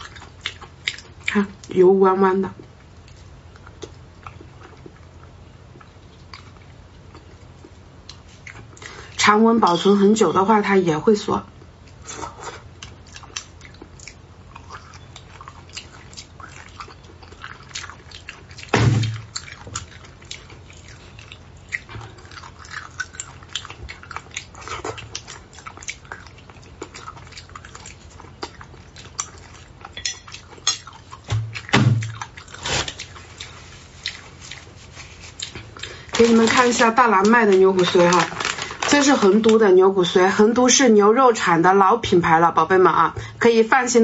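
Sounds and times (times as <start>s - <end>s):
chewing and lip-smacking: 0.0s - 1.8s, 2.6s - 9.1s, 11.6s - 36.6s.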